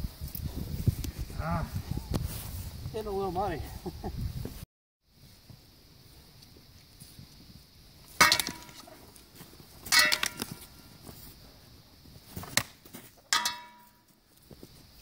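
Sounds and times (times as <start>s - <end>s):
practice swords clacking: 9.9s - 10.7s, 13.3s - 14.0s.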